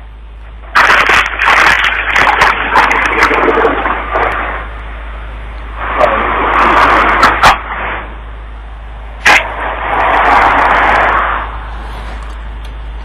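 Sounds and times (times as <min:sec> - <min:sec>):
scattered clicks: 0:12.1 - 0:12.8.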